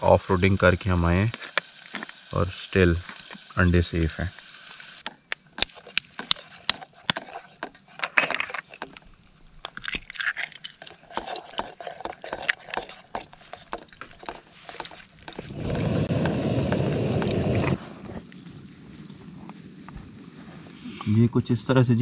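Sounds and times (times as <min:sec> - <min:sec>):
spoon beating eggs: 0:10.8 - 0:15.5.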